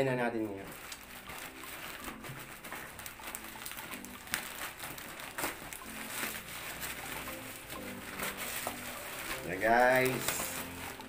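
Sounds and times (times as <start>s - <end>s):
plastic bag crinkling and rustling: 0.1s - 11.0s.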